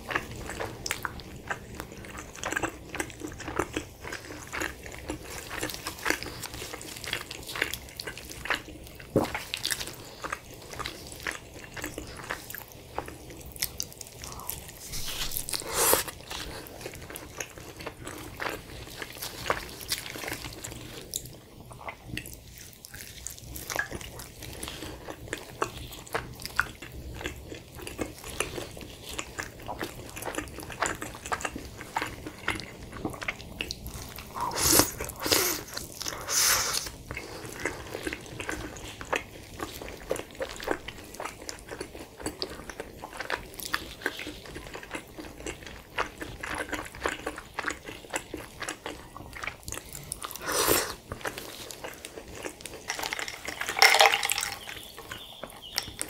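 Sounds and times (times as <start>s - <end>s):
chewing mouth clicks and smacks: 37.1s - 50.4s, 51.0s - 56.0s.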